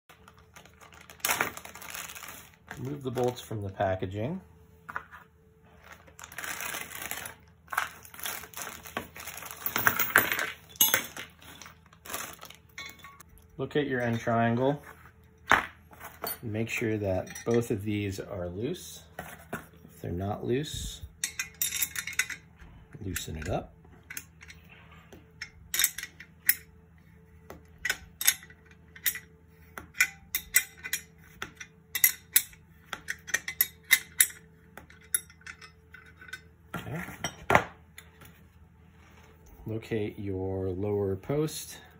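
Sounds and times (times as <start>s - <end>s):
plastic bag crinkling: 0.1s - 3.4s, 5.8s - 9.8s, 11.2s - 12.8s
metal tools clinking on steel: 7.8s - 14.8s, 16.0s - 18.4s, 21.1s - 24.7s, 25.4s - 26.7s, 27.7s - 37.5s
metal parts clicking together: 21.2s - 24.6s, 25.4s - 26.7s, 27.8s - 36.5s.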